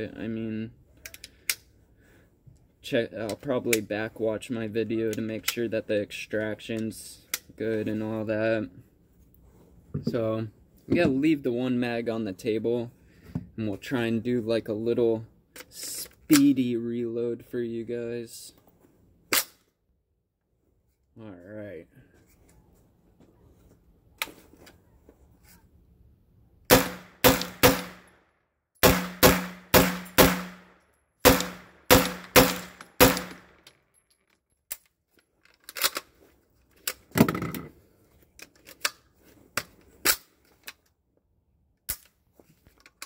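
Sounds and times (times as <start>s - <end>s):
metallic clicks of gun handling: 1.0s - 1.7s, 6.7s - 7.5s, 15.5s - 16.6s, 32.2s - 37.1s, 38.4s - 41.0s, 41.8s - 43.0s
pistol shots ringing: 26.7s - 28.0s, 28.8s - 30.6s, 31.2s - 33.5s.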